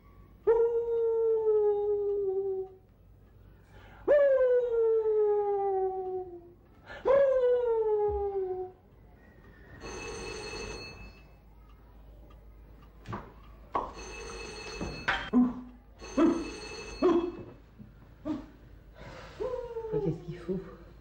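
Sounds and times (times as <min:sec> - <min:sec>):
electric doorbell ringing: 0:09.8 - 0:11.3, 0:13.9 - 0:15.3, 0:16.0 - 0:17.4.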